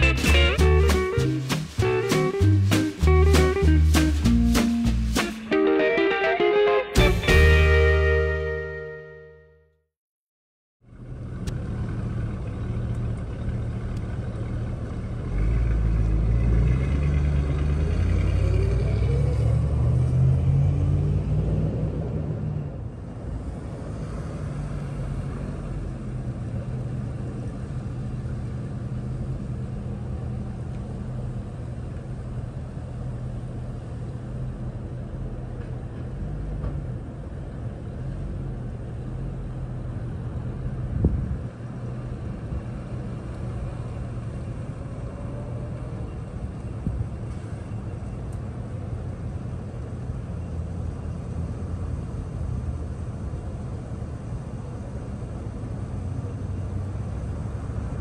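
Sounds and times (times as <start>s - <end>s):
van engine running: 0.0s - 5.3s.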